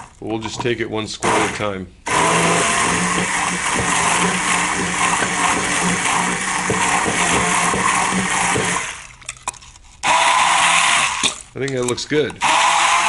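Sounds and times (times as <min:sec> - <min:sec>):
immersion blender in glass jar: 0:01.2 - 0:09.1, 0:10.0 - 0:11.4, 0:12.4 - 0:13.0.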